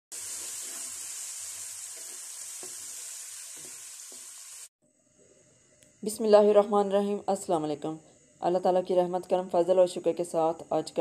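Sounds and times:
vegetables sizzling in oil: 0.1s - 4.7s.

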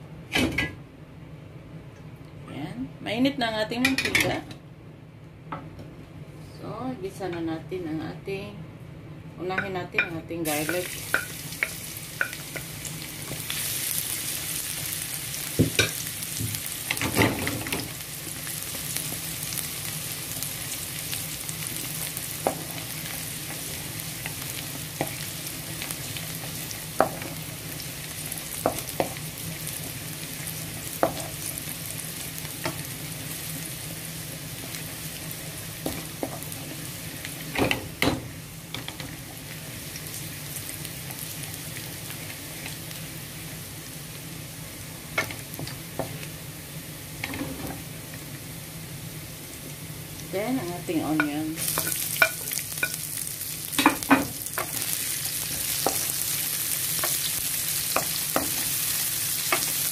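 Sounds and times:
garlic sizzling in hot oil: 10.0s - 59.9s
spatula knocking and scraping pan: 51.1s - 53.0s.

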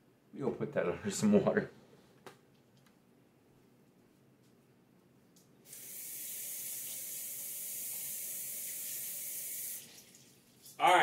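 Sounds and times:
water tap running: 5.7s - 11.0s.

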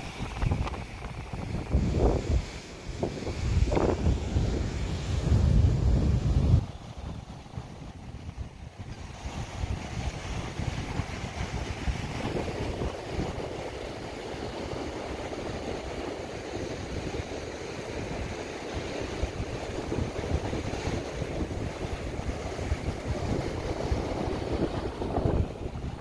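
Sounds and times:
waves breaking over rocks: 0.0s - 26.0s
wind buffeting microphone: 0.0s - 26.0s.

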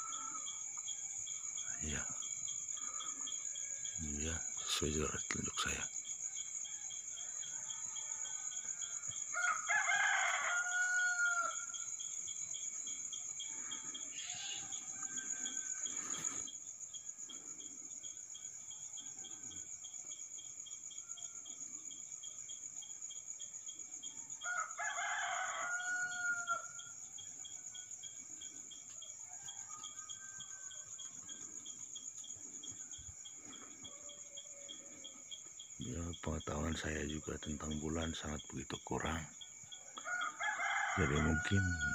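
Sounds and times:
crickets trilling: 0.0s - 41.9s
rooster crowing: 5.7s - 12.1s, 13.3s - 16.5s, 24.2s - 27.0s, 28.9s - 31.4s, 33.5s - 41.9s.

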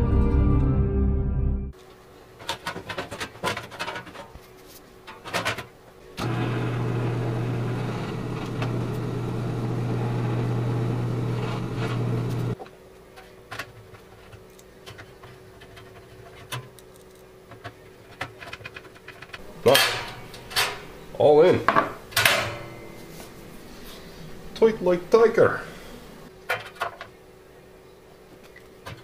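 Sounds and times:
drill press motor hum: 6.2s - 12.6s.

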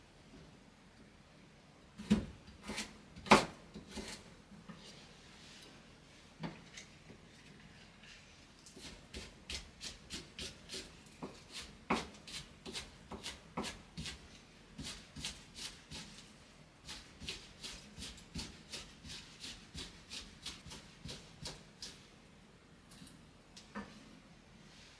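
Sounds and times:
knife chopping on wooden board: 9.1s - 14.2s.

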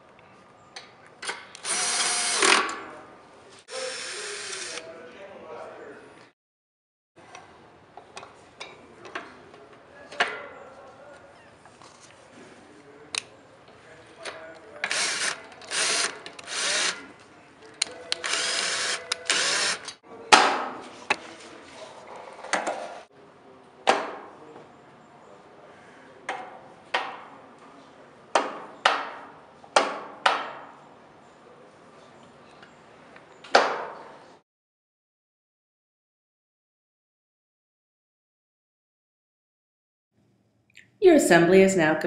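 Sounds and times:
power drill driving bolts: 1.6s - 2.8s, 3.8s - 4.8s, 14.8s - 17.0s, 18.1s - 20.0s.

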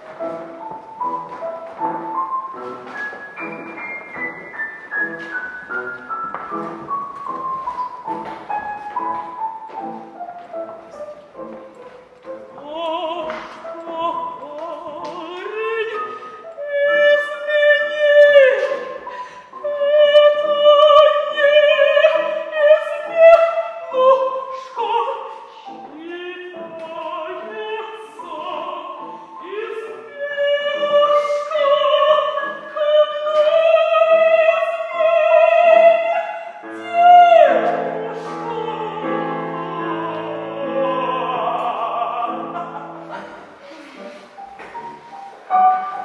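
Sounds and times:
operatic soprano singing: 12.3s - 44.4s.

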